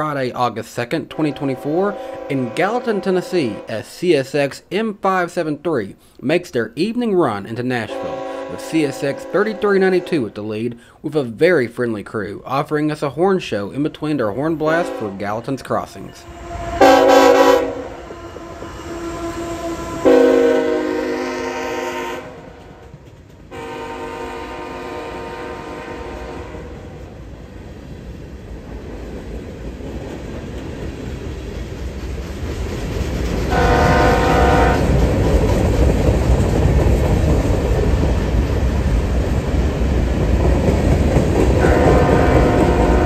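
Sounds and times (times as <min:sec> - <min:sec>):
locomotive air horn blasts: 0:01.2 - 0:03.7, 0:07.9 - 0:10.2, 0:14.8 - 0:15.2, 0:16.2 - 0:22.6, 0:23.5 - 0:26.9, 0:33.5 - 0:34.9, 0:41.6 - 0:43.0
freight cars rumbling and clacking: 0:22.5 - 0:23.6, 0:27.8 - 0:43.0.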